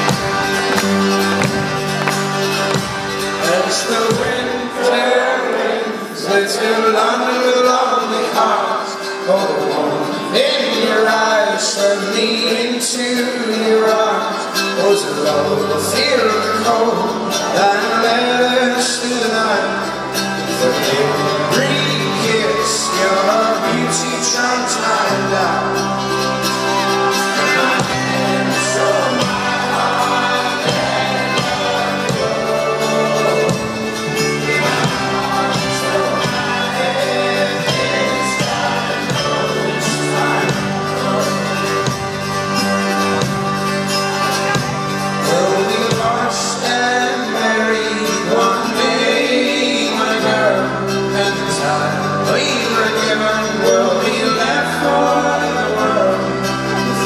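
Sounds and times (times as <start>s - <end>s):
bass notes: 0.0s - 5.4s, 15.4s - 48.1s
man singing lead: 0.0s - 43.2s, 44.1s - 57.0s
accordion: 0.0s - 57.0s
acoustic guitar: 0.0s - 57.0s
strummed mandolin: 0.0s - 57.0s.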